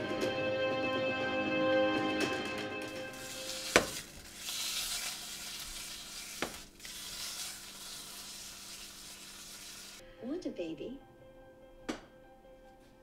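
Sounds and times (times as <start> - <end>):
music: 0.0 - 4.2, 10.0 - 13.0
food sizzling in frying pan: 2.8 - 10.0.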